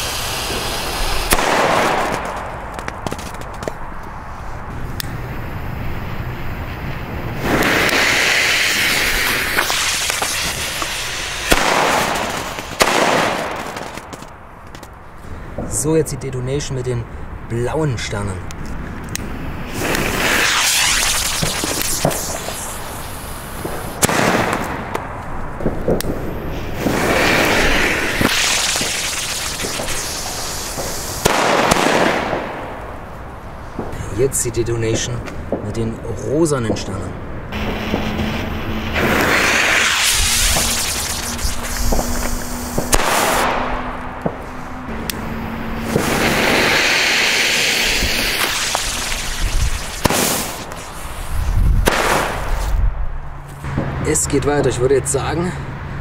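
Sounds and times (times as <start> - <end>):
firework fuse hissing: 0.0 - 14.4, 19.3 - 25.0, 25.6 - 32.8, 37.5 - 52.8
firework bangs: 0.0 - 15.7, 19.3 - 34.2, 36.7 - 52.8.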